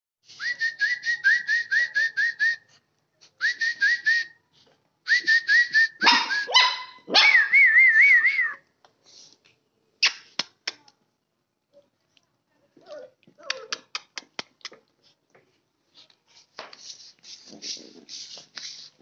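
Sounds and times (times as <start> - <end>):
puppy yelps: 6.0 - 7.6, 12.9 - 14.0
puppy whining: 12.8 - 14.0.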